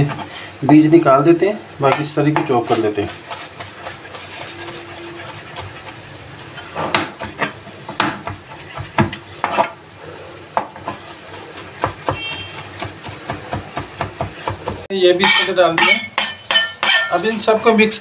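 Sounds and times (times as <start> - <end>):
knife chopping on cutting board: 6.8 - 9.7, 11.6 - 17.1.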